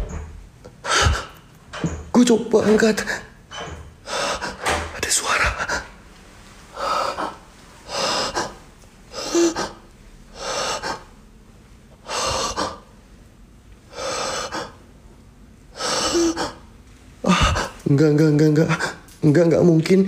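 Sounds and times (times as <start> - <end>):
man breathing hard: 0.8 - 1.5, 4.0 - 5.9, 6.7 - 11.2, 12.0 - 12.9, 13.9 - 14.8, 15.7 - 17.8.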